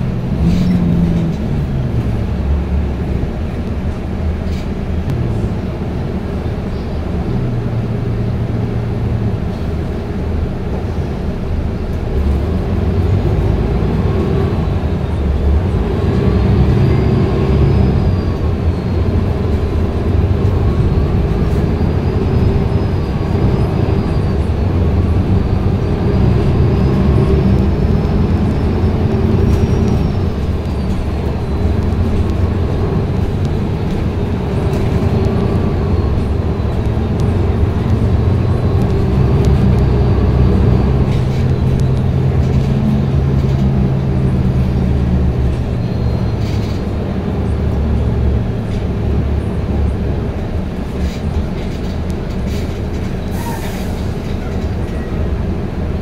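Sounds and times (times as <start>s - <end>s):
bus diesel engine: 0.0s - 56.0s
road and body rumble: 0.0s - 56.0s.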